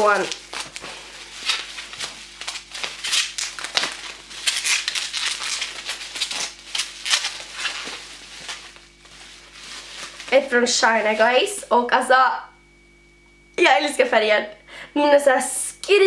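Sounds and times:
plastic wrapping crinkling: 0.0s - 11.8s.

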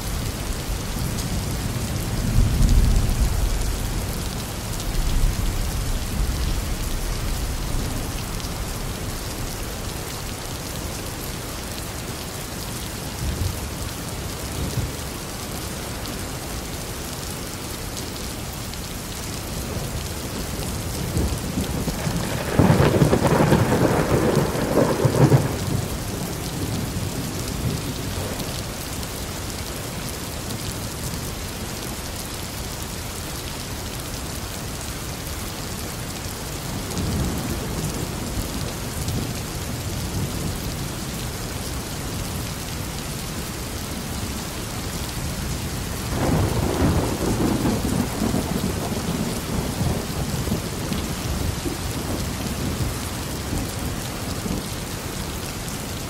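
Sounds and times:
steady rain: 0.0s - 56.0s
rolling thunder: 21.1s - 27.0s, 46.1s - 50.7s.

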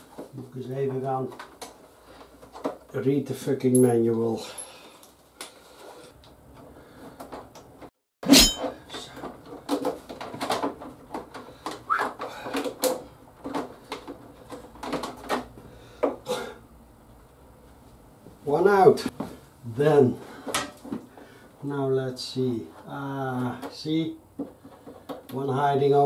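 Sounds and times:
plastic and metal handling clatter: 1.2s - 2.9s, 8.6s - 15.6s.

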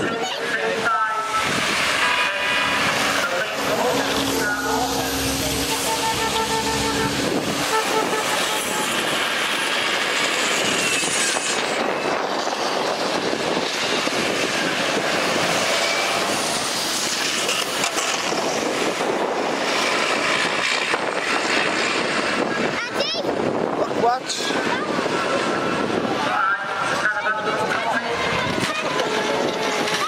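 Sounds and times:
bus diesel engines racing past: 0.0s - 30.0s.

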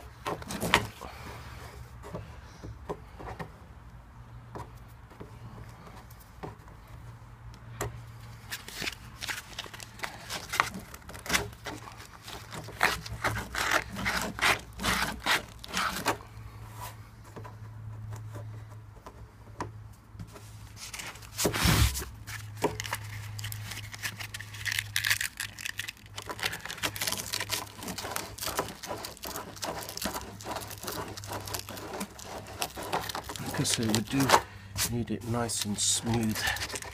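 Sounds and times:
sandpaper scratching plastic: 8.4s - 16.2s, 20.6s - 36.9s.

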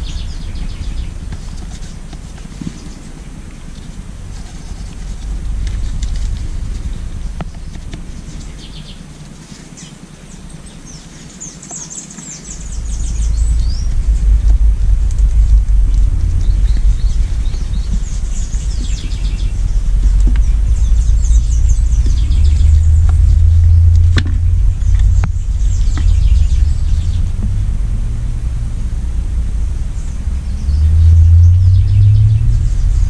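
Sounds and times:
birds chirping: 0.0s - 33.0s
loud uneven low rumble: 0.0s - 33.0s.

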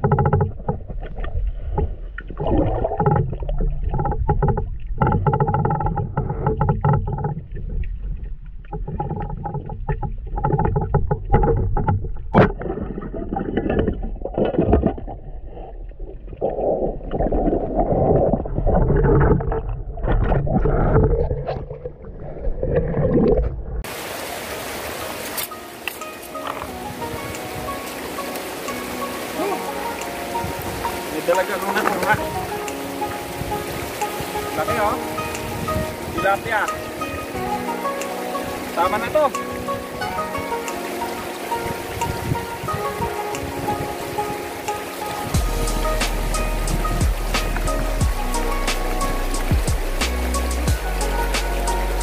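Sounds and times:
muffled underwater churning and bubbling: 0.0s - 52.0s
river water running over stones: 0.0s - 52.0s.

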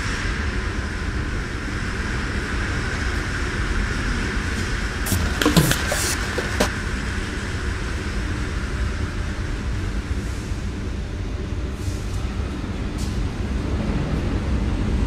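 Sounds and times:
train rumble and hiss: 0.0s - 15.0s
sharp knocks: 5.1s - 6.7s.

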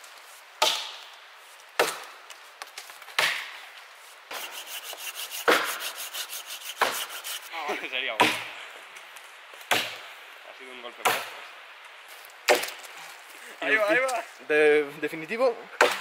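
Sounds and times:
axe chopping wood: 0.6s - 1.0s, 1.8s - 2.2s, 3.2s - 3.5s, 8.2s - 8.5s, 9.7s - 10.0s, 11.0s - 11.4s, 12.5s - 12.8s, 15.8s - 16.0s.

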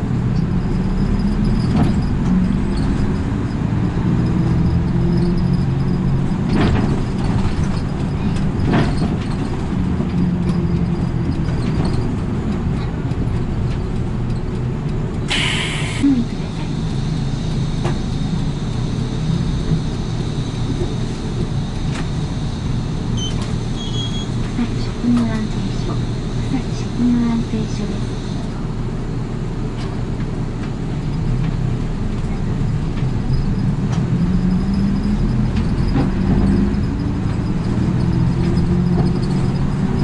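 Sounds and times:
bus engine running: 0.0s - 40.0s
road noise: 0.0s - 40.0s
air hiss: 15.3s - 16.2s.

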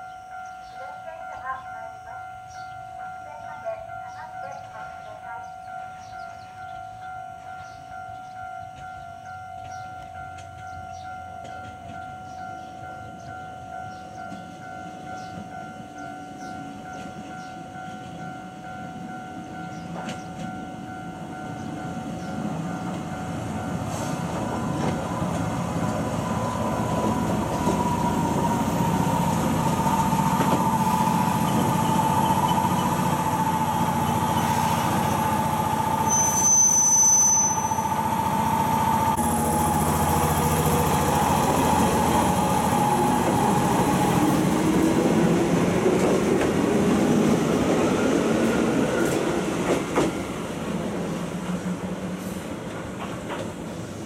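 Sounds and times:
level crossing bell ringing: 0.0s - 45.4s
electric train rumbling: 0.0s - 54.0s
train running gear whine: 5.7s - 54.0s
brief high squeal: 36.1s - 37.9s.

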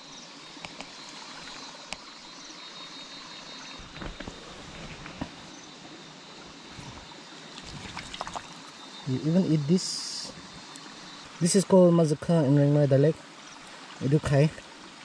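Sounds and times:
faint high insect drone: 0.0s - 15.0s
hand splashing in shallow water: 7.6s - 8.6s.

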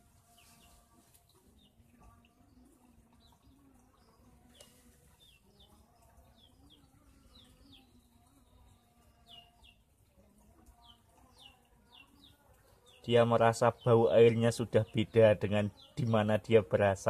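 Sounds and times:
faint bird chirps: 0.0s - 9.9s.

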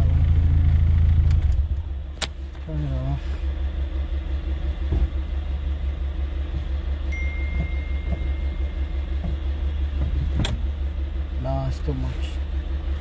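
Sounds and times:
car engine idling: 0.0s - 13.0s
thin high tone: 7.1s - 9.0s.

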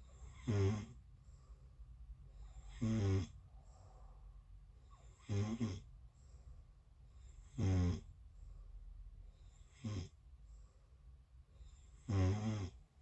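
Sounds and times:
person snoring: 0.2s - 1.0s, 2.5s - 3.4s, 5.1s - 5.9s, 7.4s - 8.1s, 9.6s - 10.2s, 11.9s - 12.8s.

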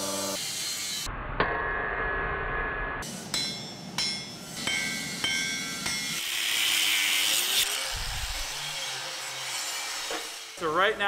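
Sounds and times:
hammer striking steel on anvil: 3.0s - 6.4s
angle grinder grinding steel: 3.0s - 11.0s.

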